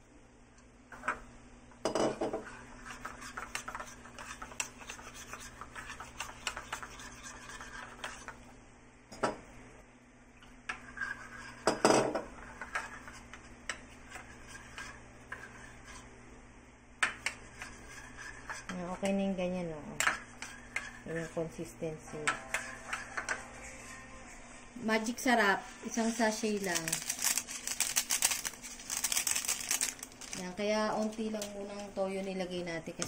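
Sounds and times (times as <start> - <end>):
metal spoon scraping a bowl: 2.4 - 8.4, 17.2 - 19.0, 20.0 - 21.4, 22.2 - 24.1.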